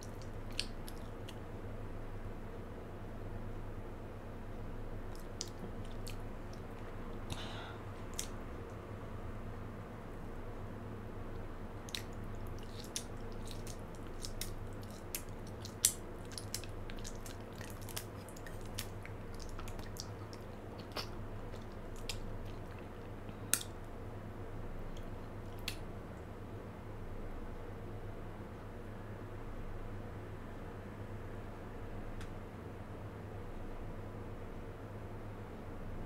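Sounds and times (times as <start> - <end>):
biting and chewing: 0.0 - 1.4, 5.1 - 7.4, 11.8 - 23.8
mouth clicks and smacks: 0.0 - 1.4, 5.1 - 7.5, 8.1 - 8.4, 11.8 - 23.8, 25.0 - 25.9
steady low hum: 0.0 - 36.0
snaps: 23.5 - 23.8.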